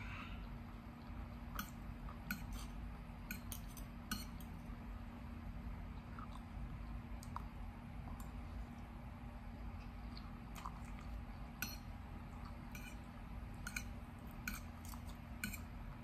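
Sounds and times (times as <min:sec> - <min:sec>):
steady low hum: 0:00.0 - 0:16.0
cutlery clinking on a plate: 0:03.3 - 0:04.5.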